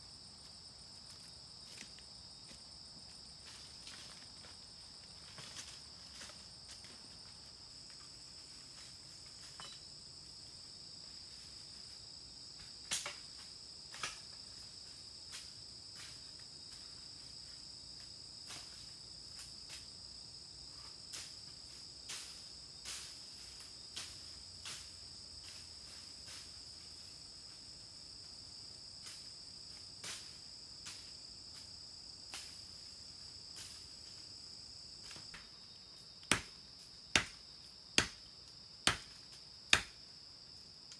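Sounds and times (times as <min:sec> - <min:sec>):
insects droning: 0:00.0 - 0:40.9.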